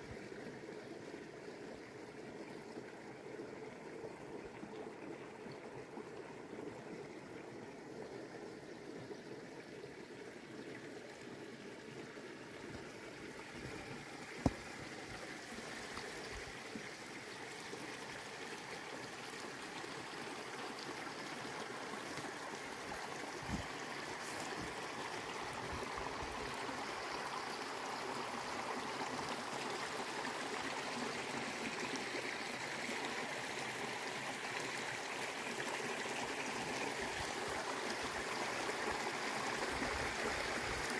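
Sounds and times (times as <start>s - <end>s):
stream water rushing: 9.9s - 40.9s.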